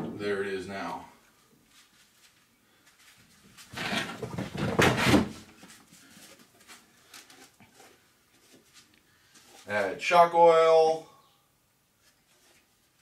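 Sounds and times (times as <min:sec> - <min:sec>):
plastic jug scraping and rustling: 0:03.5 - 0:09.7.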